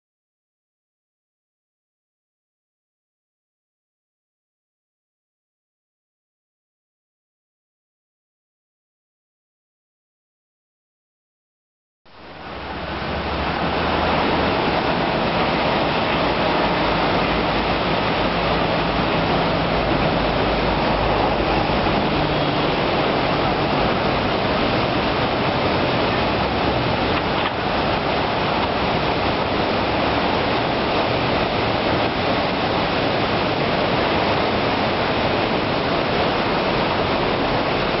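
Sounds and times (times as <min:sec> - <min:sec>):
river rushing over dam: 0:12.1 - 0:38.0.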